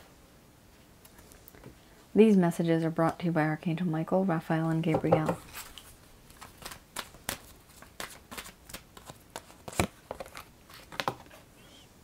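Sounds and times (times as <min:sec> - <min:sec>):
cards being shuffled: 0:05.5 - 0:11.4.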